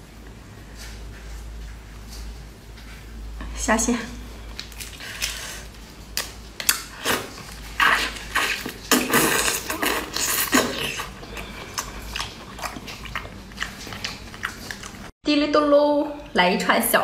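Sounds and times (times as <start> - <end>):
chewing: 4.4 - 15.1
wet sucking and slurping: 6.9 - 15.1.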